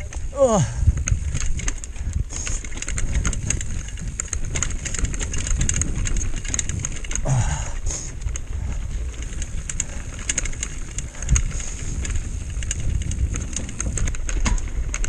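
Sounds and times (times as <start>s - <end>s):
bike rattling over stones: 0.0s - 15.0s
bike tyres rumbling: 0.0s - 15.0s
wind on microphone: 0.0s - 15.0s
rider grunting: 0.1s - 1.0s, 7.1s - 8.2s.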